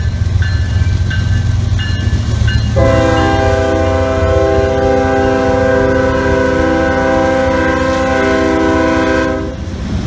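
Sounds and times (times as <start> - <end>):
diesel locomotives rumbling: 0.0 - 10.0
locomotive air horn: 2.8 - 9.7.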